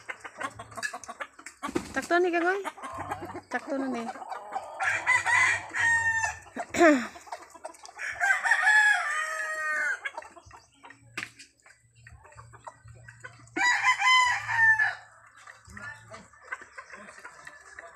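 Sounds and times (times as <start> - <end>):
roosters crowing: 4.2 - 7.1, 7.9 - 10.1, 13.6 - 17.9.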